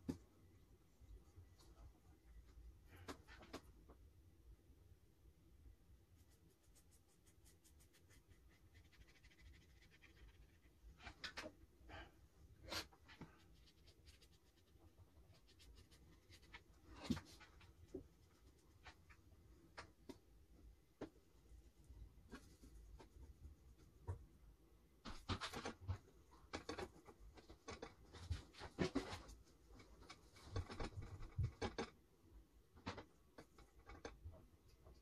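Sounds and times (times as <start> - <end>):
paintbrush scratching on paper: 6.1 - 11.2, 12.6 - 16.8.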